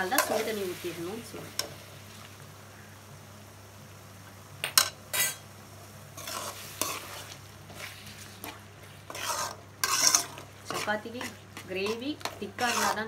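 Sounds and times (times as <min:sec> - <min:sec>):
metal spoon scraping pan: 0:05.1 - 0:05.4, 0:06.2 - 0:13.0.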